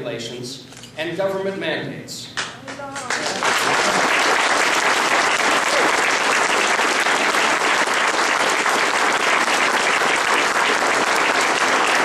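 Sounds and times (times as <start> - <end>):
crowd applauding: 2.7 - 12.0.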